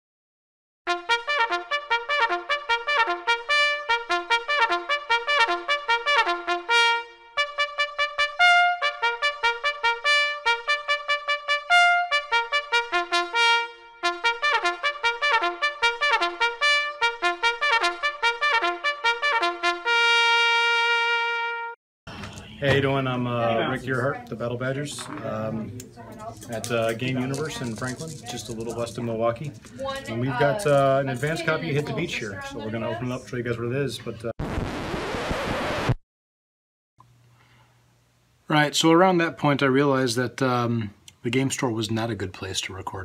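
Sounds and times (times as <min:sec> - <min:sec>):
brass fanfare: 0:00.9 - 0:21.8.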